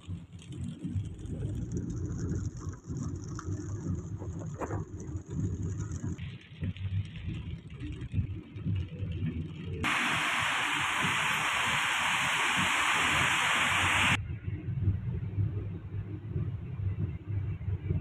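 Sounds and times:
hiss of rain on wet road: 9.8s - 14.2s.

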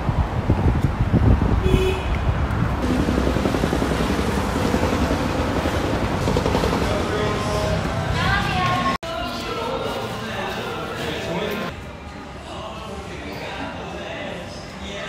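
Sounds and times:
wind buffeting microphone: 0.0s - 9.0s
passing traffic: 0.0s - 12.6s.

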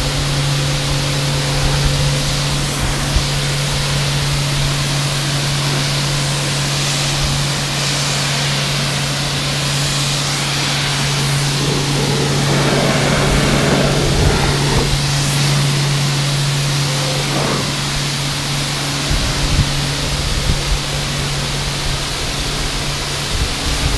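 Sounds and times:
pressure washer humming: 11.2s - 15.5s
foam spray hissing: 11.2s - 15.6s.

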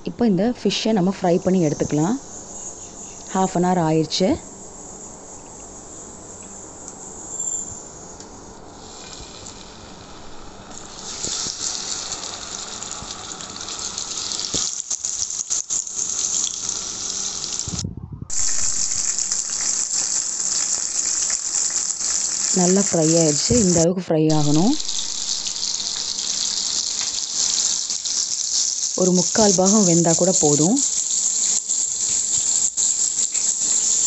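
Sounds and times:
fish frying in oil: 8.8s - 34.0s.

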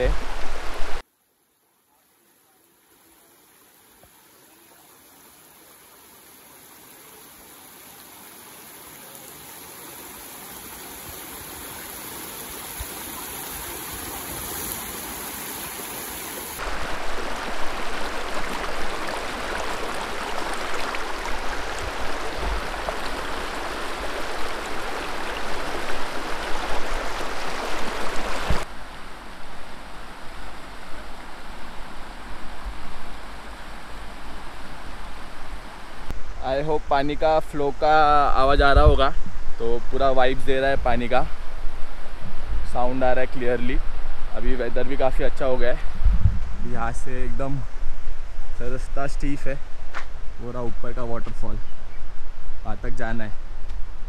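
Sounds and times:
stream rushing over rocks: 0.0s - 1.1s, 2.1s - 28.8s.

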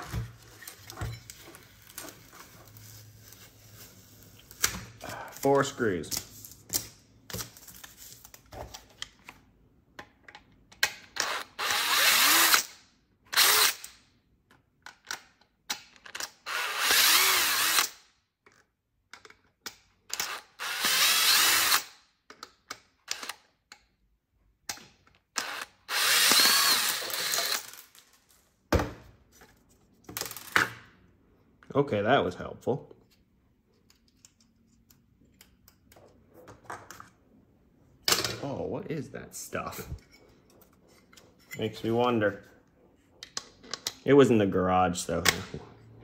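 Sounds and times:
cordless drill motor whirring: 11.2s - 12.7s, 16.4s - 18.0s, 20.2s - 22.0s, 25.4s - 27.8s.

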